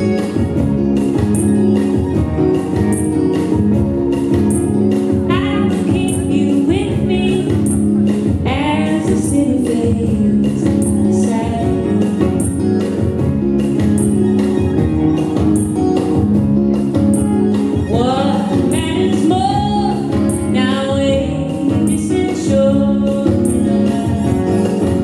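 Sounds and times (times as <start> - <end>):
live folk band playing: 0.0 - 25.0
person singing: 5.2 - 12.6, 17.7 - 25.0.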